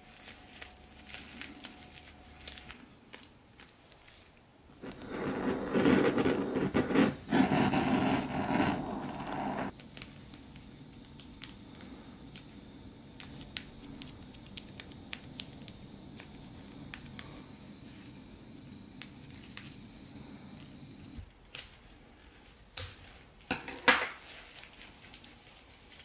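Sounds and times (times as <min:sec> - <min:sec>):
butane torch hissing: 0:04.8 - 0:21.2.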